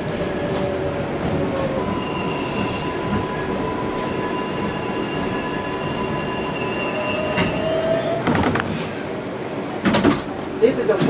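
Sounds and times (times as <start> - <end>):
train wheels rumbling on track: 0.0 - 11.0
high squealing tones: 1.6 - 8.2.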